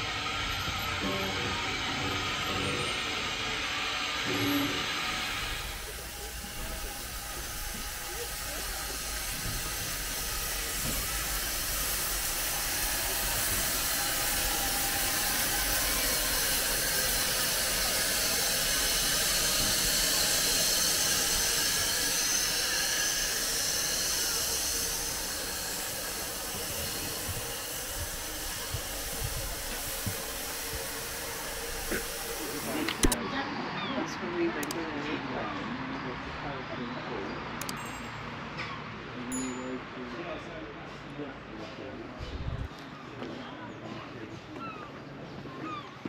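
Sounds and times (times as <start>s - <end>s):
steam hissing from locomotive: 0.0s - 33.2s.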